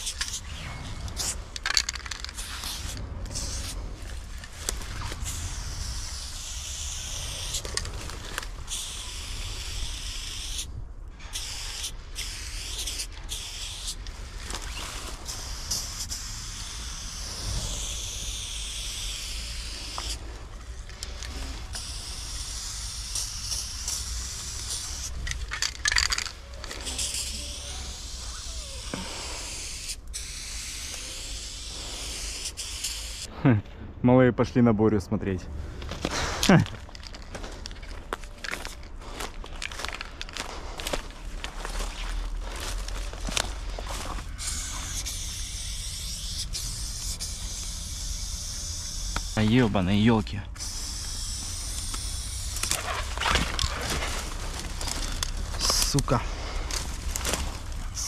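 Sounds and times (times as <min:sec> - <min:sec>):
spray-paint can hissing: 0:01.2 - 0:03.8, 0:05.1 - 0:07.9, 0:08.7 - 0:10.7, 0:11.3 - 0:14.0, 0:14.7 - 0:20.2, 0:20.8 - 0:33.3, 0:44.4 - 0:49.4, 0:50.6 - 0:52.7.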